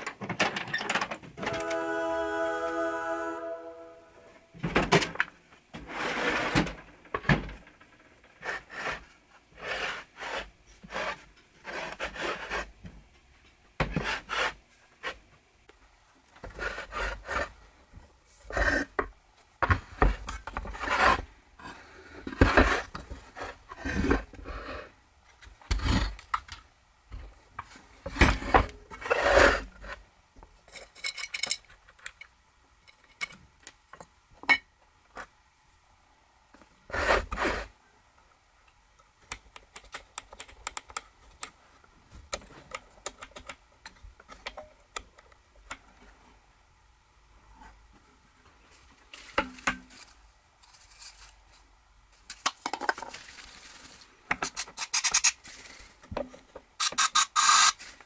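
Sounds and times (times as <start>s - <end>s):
small parts clicking: 54.4s - 55.4s, 56.8s - 57.8s.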